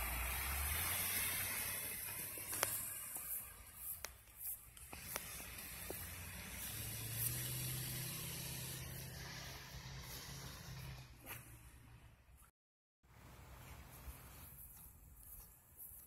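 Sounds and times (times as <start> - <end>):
fire truck engine drone: 0.0 - 12.0.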